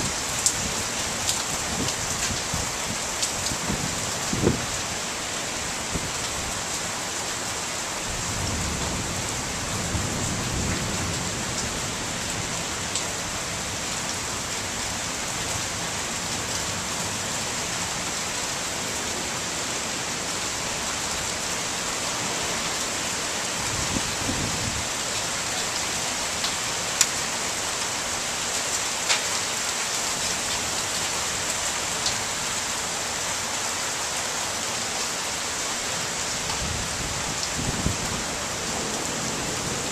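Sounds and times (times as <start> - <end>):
heavy rain pouring: 0.0 - 39.9
raindrops ticking on surface: 3.1 - 3.7, 26.4 - 27.2, 29.0 - 29.3.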